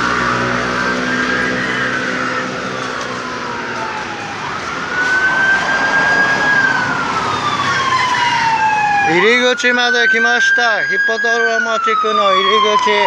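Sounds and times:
siren wailing: 0.0s - 13.0s
street traffic noise: 0.0s - 13.0s.

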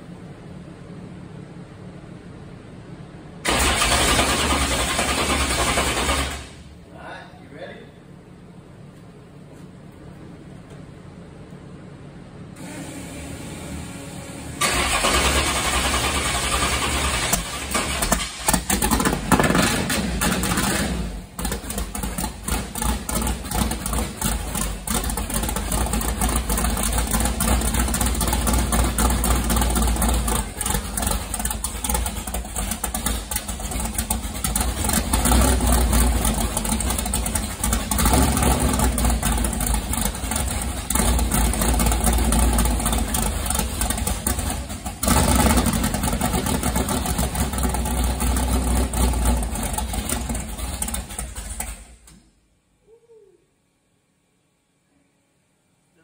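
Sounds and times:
engine starting and idling unevenly: 3.4s - 6.8s, 12.6s - 52.3s
engine revving: 14.6s - 51.8s.

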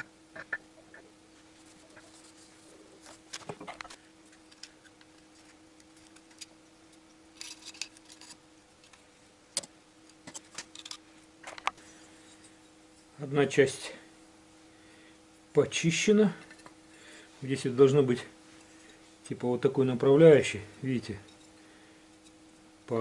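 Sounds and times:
faint steady hum: 0.0s - 23.0s
metal clicks and scrapes: 7.4s - 9.0s.

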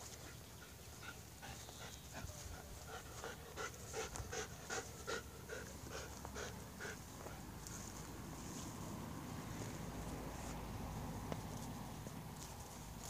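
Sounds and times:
small dog panting: 0.1s - 8.0s.

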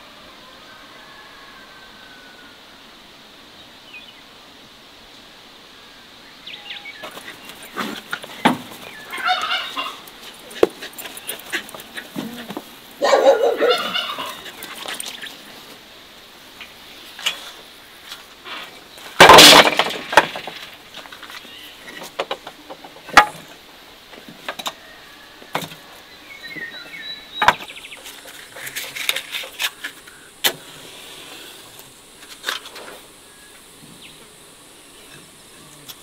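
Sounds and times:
loud wood clatter: 7.0s - 8.9s, 19.0s - 23.6s
wooden logs clunking: 7.0s - 15.5s, 16.6s - 24.8s, 26.6s - 30.7s.

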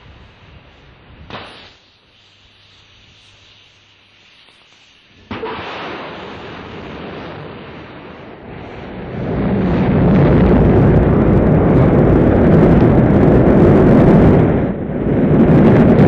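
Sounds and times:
rocket engine rumble: 5.1s - 16.0s.

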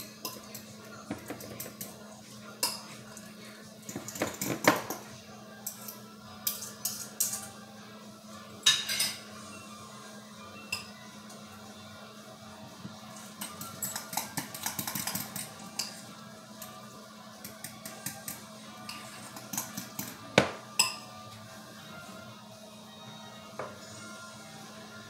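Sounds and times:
metal spoon clinking on glass bowl: 13.4s - 16.0s.

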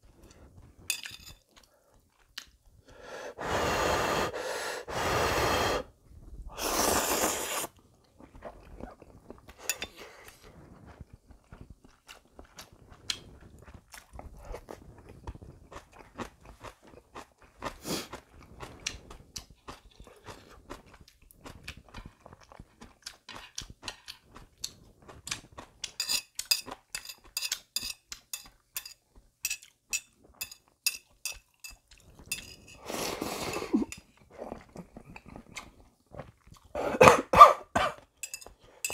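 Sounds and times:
chewing with crisp crunching: 0.0s - 3.0s, 7.6s - 36.8s, 37.9s - 38.9s
slurping noodles: 6.5s - 7.8s, 32.8s - 37.3s
slurp of liquid: 6.5s - 9.6s.

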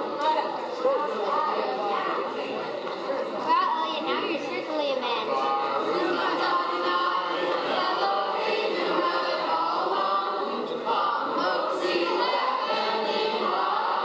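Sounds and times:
group singing unaccompanied: 5.4s - 14.0s.

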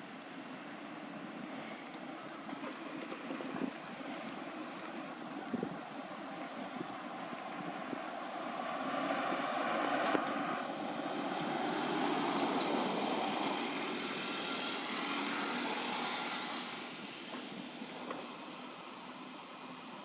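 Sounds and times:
passing vehicle engine: 6.4s - 17.2s.

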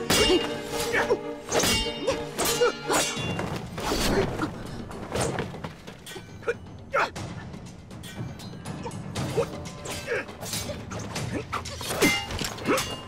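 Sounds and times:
steel swords clashing: 0.0s - 4.3s, 8.0s - 13.0s.

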